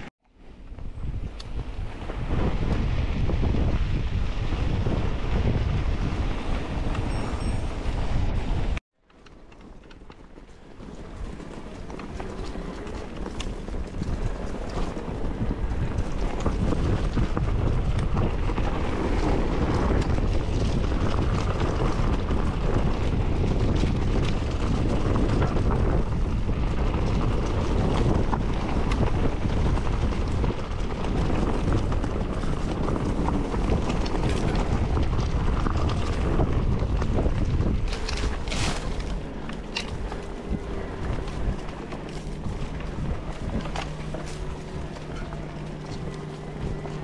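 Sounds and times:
wind buffeting microphone: 0.0s - 47.0s
bike knocks and rattles: 9.1s - 47.0s
tyre noise: 9.6s - 47.0s.

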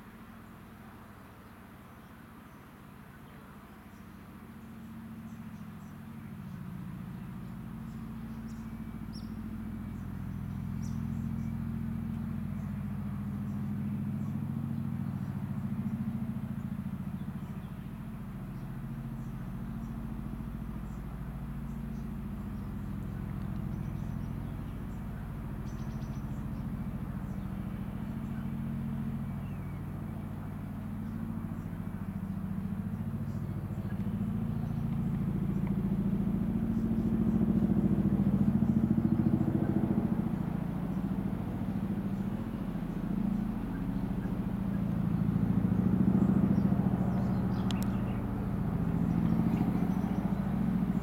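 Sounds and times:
turbine drone: 5.3s - 51.0s.

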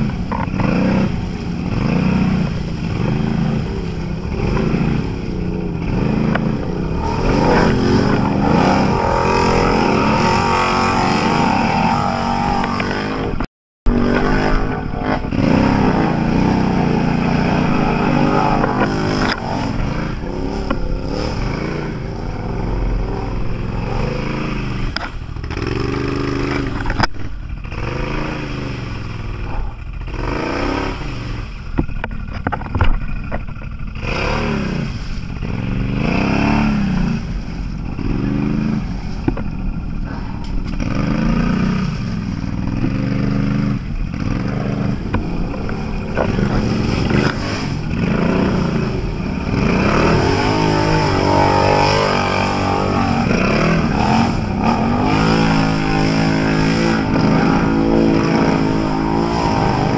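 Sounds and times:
higher-pitched engine: 0.0s - 27.0s, 33.9s - 59.9s
off-road vehicle engine revving: 0.0s - 59.9s
knocks and clatter: 31.7s - 33.8s.

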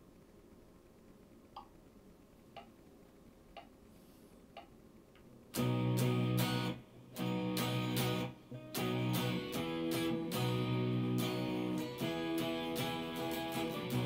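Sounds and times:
electric guitar strumming chord: 5.6s - 14.0s.

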